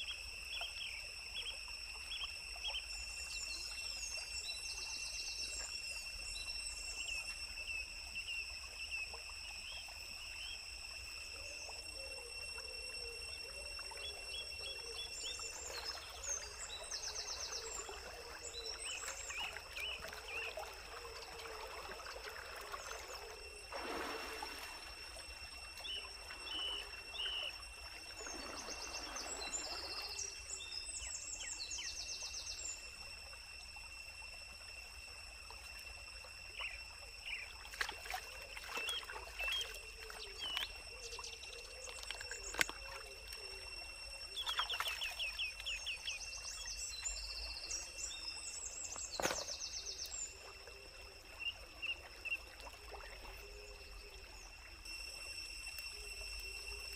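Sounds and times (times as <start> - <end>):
stream water trickling: 0.0 - 56.9
water splashing: 17.7 - 30.6, 37.5 - 41.2, 41.8 - 46.6, 48.8 - 50.7.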